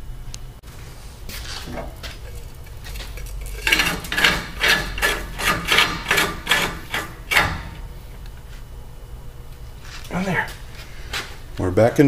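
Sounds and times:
handling noise: 0.6 - 8.7
metal threads scraping: 1.3 - 8.3.

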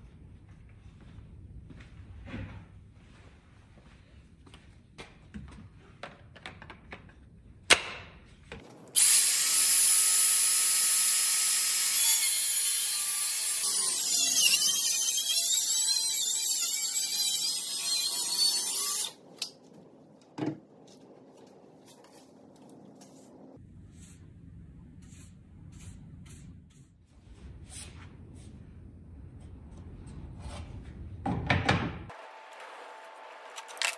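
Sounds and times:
circular saw whining through wood: 9.0 - 19.2.

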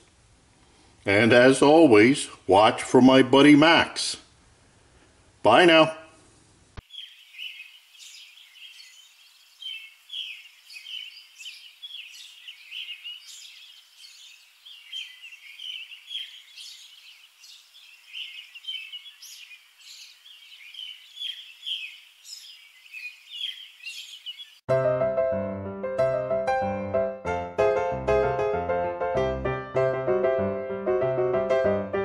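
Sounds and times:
birds chirping: 6.8 - 24.7.

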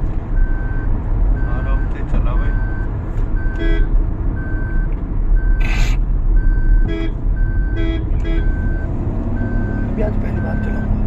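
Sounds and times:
road and engine rumble: 0.0 - 11.0.

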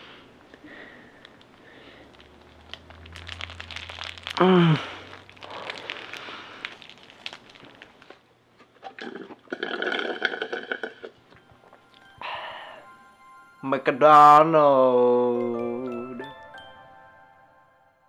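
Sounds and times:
paper wrapper crinkling: 1.2 - 8.3
vocal groan: 4.3 - 6.1
slurping through a straw: 8.8 - 11.1.

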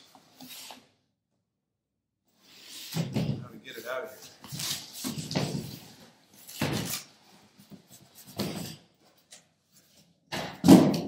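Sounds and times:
boxes thumping on table: 10.3 - 11.0.

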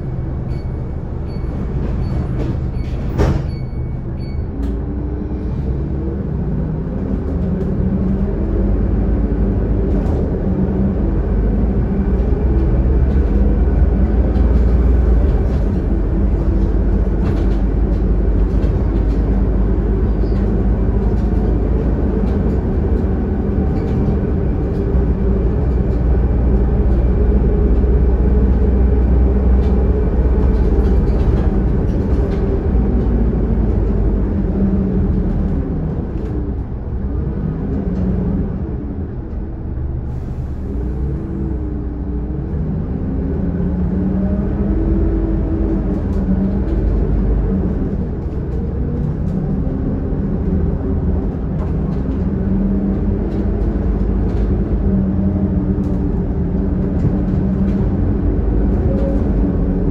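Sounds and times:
bus diesel engine rumbling: 0.0 - 59.9
interior clicks and rattles: 11.9 - 36.7.

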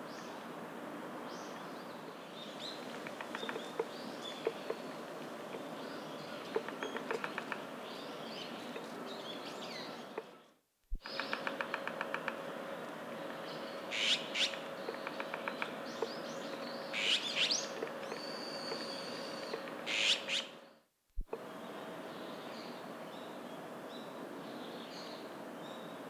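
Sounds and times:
woodpecker tapping: 2.8 - 4.8, 6.5 - 7.7, 11.0 - 12.4, 14.4 - 20.1.

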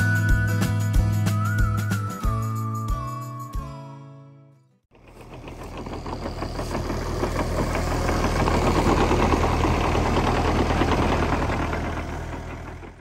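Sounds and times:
excavator diesel engine clattering: 4.9 - 13.0.

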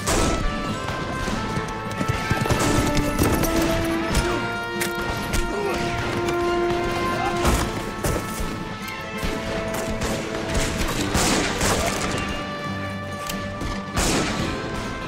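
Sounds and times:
gunshots with impact hits: 0.0 - 4.4, 9.2 - 12.4, 13.8 - 15.0
film score of held tones: 0.0 - 15.0.

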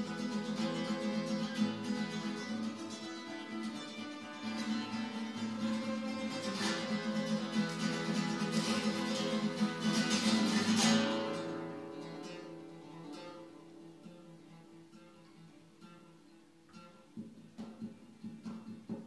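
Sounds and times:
classical guitar strumming and plucking: 0.0 - 19.0.

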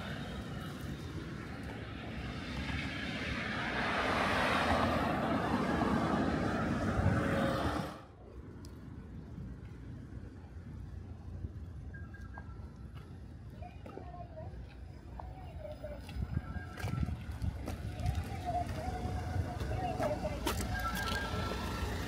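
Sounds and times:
electric train running past: 0.0 - 8.1, 18.6 - 22.0.

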